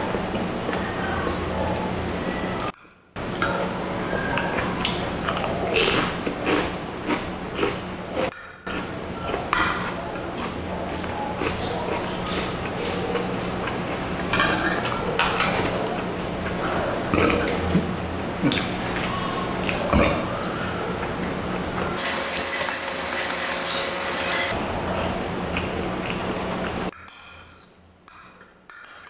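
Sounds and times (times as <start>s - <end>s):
steady low hum: 0.0s - 28.0s
chewing noodle soup: 3.2s - 26.9s
cutlery scraping glass dish: 27.0s - 29.0s.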